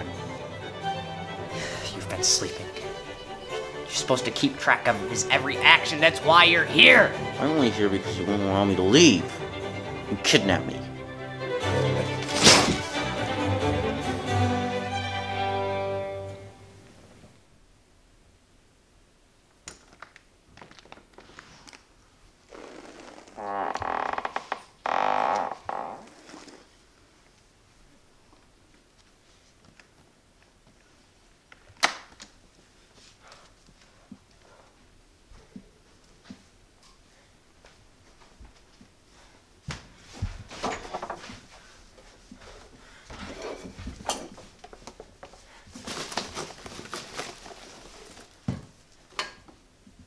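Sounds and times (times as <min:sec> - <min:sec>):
bubble wrap crinkling: 0:19.9 - 0:22.0, 0:45.7 - 0:48.5.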